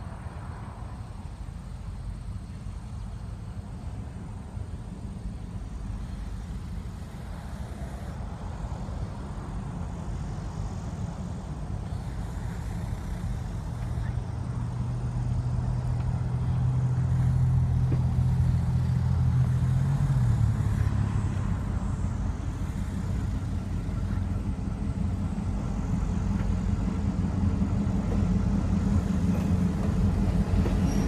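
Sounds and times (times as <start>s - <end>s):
diesel locomotive engine rumble: 0.0s - 31.0s.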